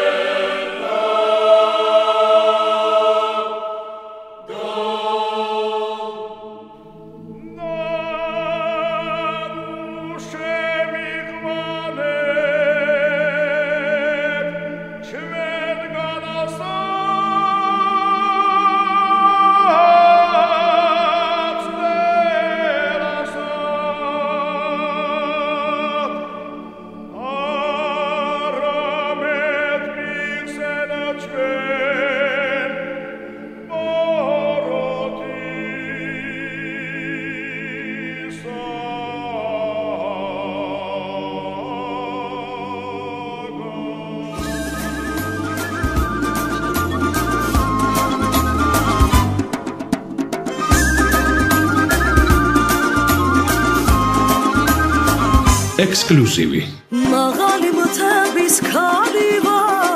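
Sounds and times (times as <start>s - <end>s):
voices singing held notes: 0.0s - 26.6s, 51.3s - 57.1s.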